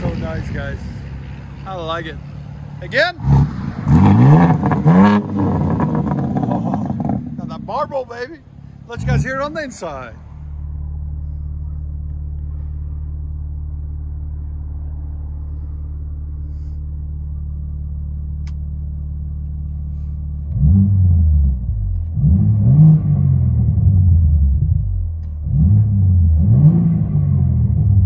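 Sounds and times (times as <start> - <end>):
car engine idling: 0.0 - 22.2
car engine revving: 0.0 - 28.0.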